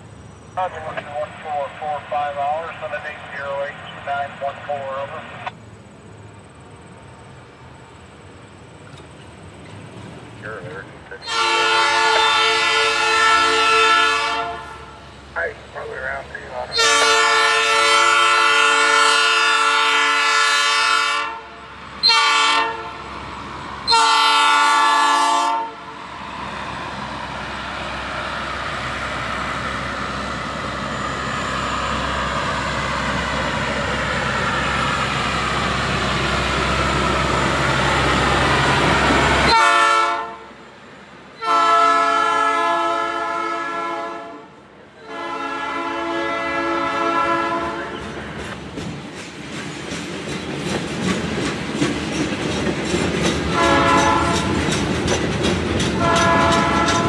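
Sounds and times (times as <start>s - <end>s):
train rumbling past: 0.0s - 57.0s
locomotive air horn blasts: 11.2s - 15.1s, 16.7s - 23.0s, 23.9s - 26.0s, 39.5s - 40.6s, 41.4s - 48.0s, 53.6s - 54.5s, 56.0s - 57.0s.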